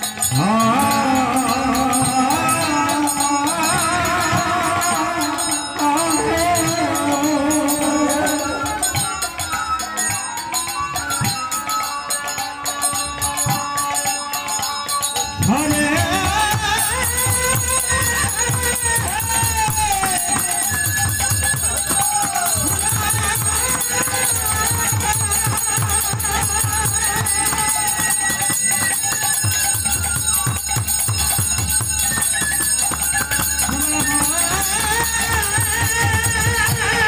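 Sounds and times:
person singing: 0.0 - 9.5, 15.4 - 20.8, 33.1 - 37.0
harmonium melody: 0.0 - 37.0
small hand cymbals ringing: 0.0 - 37.0
clay drums beating: 15.4 - 37.0.

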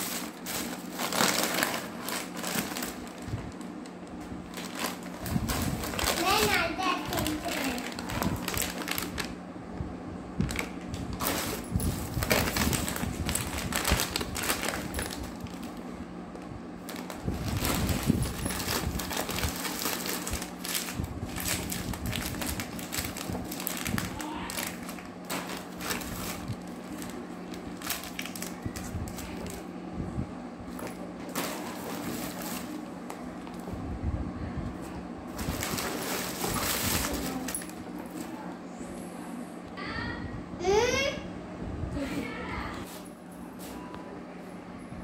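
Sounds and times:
plastic bag rustling and crinkling: 0.0 - 9.4, 10.4 - 15.9, 16.8 - 29.7, 30.7 - 33.8, 34.8 - 38.4.

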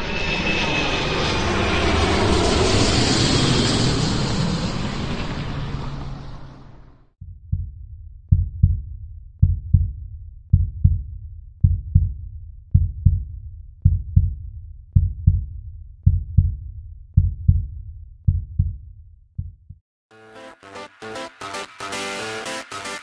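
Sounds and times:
heartbeat thumps: 7.2 - 19.8.

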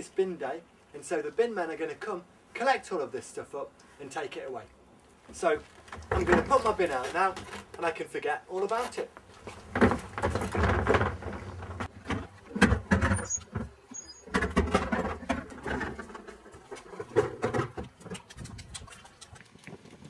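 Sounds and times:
wheelie bin rolling over paving: 9.4 - 13.7, 14.3 - 17.8.

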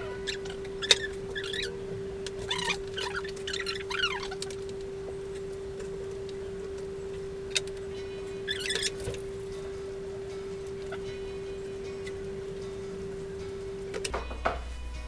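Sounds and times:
steady hum: 0.0 - 15.0
wet squeaks and squelches: 0.2 - 1.8, 2.4 - 4.6, 8.4 - 9.2.

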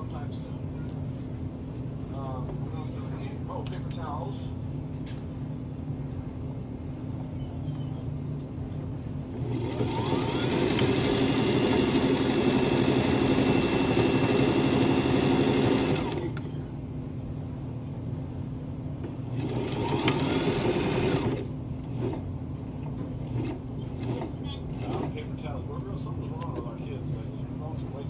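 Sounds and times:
sewing machine stitching: 9.3 - 16.4, 19.3 - 22.2, 23.2 - 25.2.

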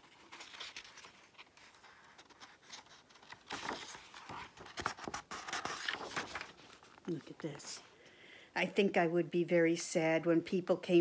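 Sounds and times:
paper page turning: 0.0 - 7.7.

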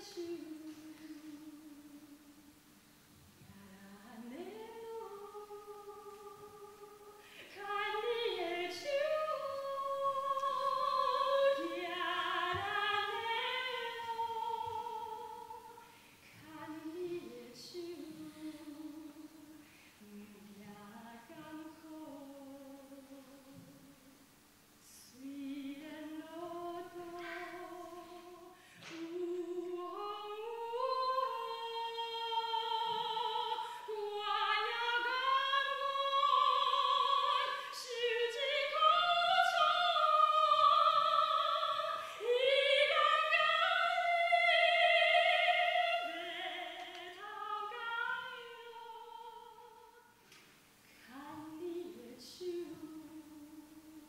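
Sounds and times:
woman singing classical style: 0.0 - 2.6, 3.4 - 50.2, 50.9 - 54.0.

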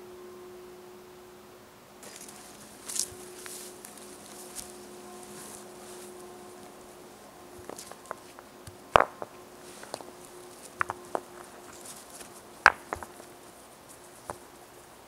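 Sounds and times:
stones clacking together: 7.6 - 13.4, 14.0 - 14.6.

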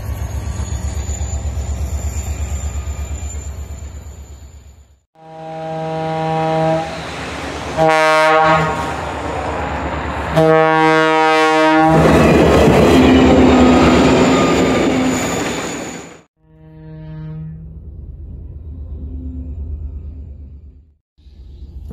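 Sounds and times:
locomotive air horn: 5.2 - 7.0, 7.8 - 9.0, 10.3 - 12.0, 16.4 - 17.8
train passing rumble: 6.1 - 16.3, 17.5 - 21.9.

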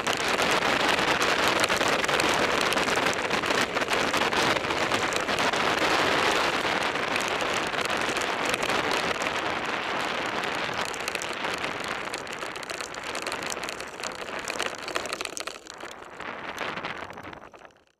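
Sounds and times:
bike rattling: 0.0 - 17.9
bike tyres crunching on gravel: 0.0 - 17.9.

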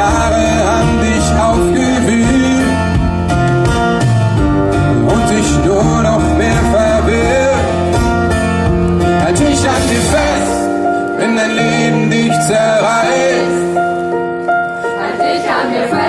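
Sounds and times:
person singing: 0.0 - 3.0, 4.9 - 7.9, 9.2 - 13.8
deep bass: 0.0 - 10.6
live band playing pop-rock ballad: 0.0 - 15.0
acoustic guitars: 0.0 - 16.0.

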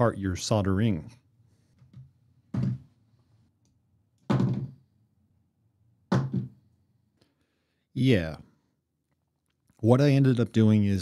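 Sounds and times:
man's voice: 0.0 - 1.2, 9.8 - 11.0.

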